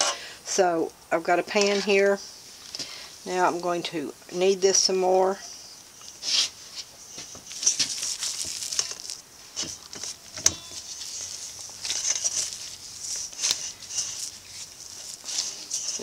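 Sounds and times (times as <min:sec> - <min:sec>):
glove rustling: 0:06.2 - 0:16.0
dough squishing in a bowl: 0:07.4 - 0:16.0.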